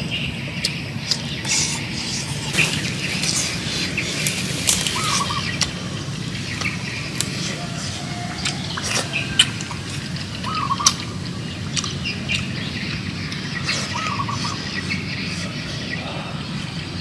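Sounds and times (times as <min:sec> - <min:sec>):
steady low background hum: 0:00.0 - 0:17.0
wild birds chirping: 0:00.0 - 0:17.0
short warbled bird call: 0:01.4 - 0:05.8.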